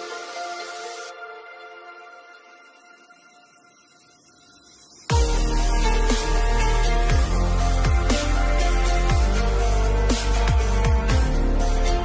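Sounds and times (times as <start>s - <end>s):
electronic music with heavy beat: 0.0s - 12.0s
sliding bass notes: 5.1s - 12.0s.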